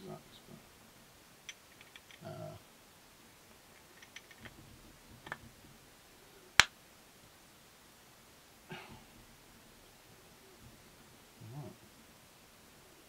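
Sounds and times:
small metallic clicks and taps: 1.5 - 2.3, 3.7 - 5.6.

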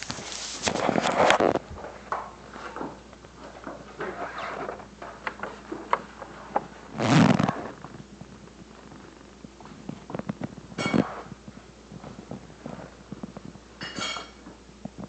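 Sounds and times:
paper bag rustling and crumpling: 0.0 - 9.1.

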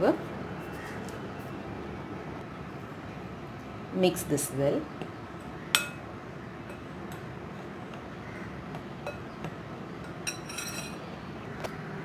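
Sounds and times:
spoon clinking against glass bowl: 5.8 - 6.0, 10.0 - 11.0
metal spoon stirring flour: 10.1 - 11.0.

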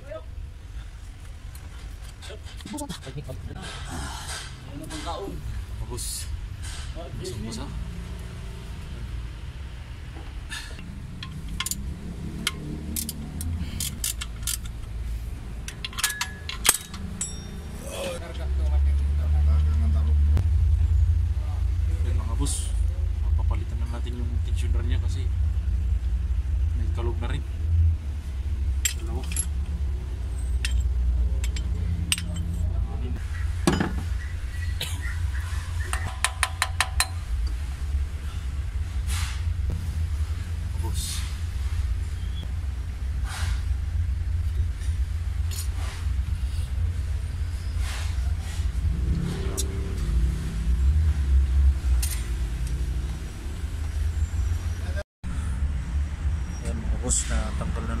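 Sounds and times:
steady low hum: 0.0 - 56.6
low background rumble: 0.0 - 58.0
light metal clicks and clinks: 10.8 - 15.0, 15.6 - 17.8, 28.8 - 29.7, 30.4 - 32.7.

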